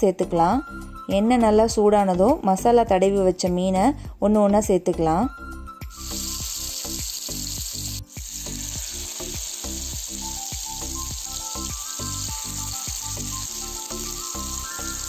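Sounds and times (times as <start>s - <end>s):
fish sizzling in hot oil: 5.9s - 15.0s.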